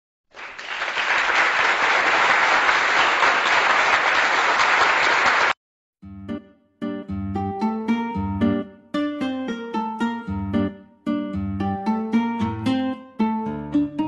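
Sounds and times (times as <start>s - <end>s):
crowd applause: 0.3s - 5.6s
plucked string instrument music: 6.0s - 14.0s.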